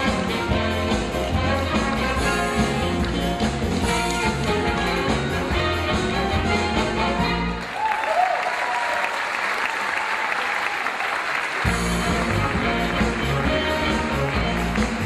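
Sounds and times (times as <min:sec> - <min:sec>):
upbeat music with bass line: 0:00.0 - 0:07.6, 0:11.6 - 0:15.0
audience applause: 0:07.4 - 0:15.0.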